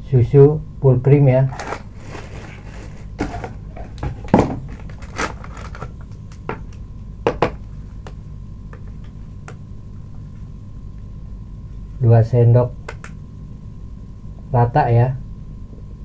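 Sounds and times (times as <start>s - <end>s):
spoon scraping plastic bowl: 1.5s - 4.0s.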